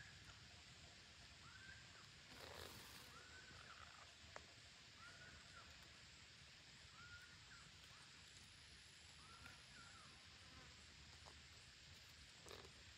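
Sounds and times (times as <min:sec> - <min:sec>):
steady forest hiss: 0:00.0 - 0:12.9.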